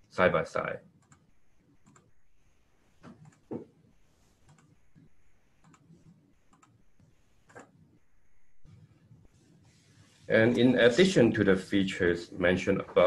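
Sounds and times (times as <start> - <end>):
computer clicks: 1.0 - 2.2, 3.0 - 3.5, 4.4 - 6.8, 7.4 - 7.8.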